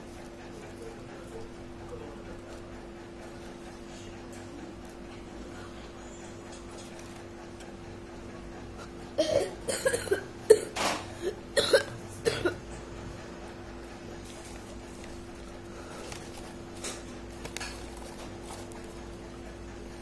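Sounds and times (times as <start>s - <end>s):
low electrical hum: 0.0s - 20.0s.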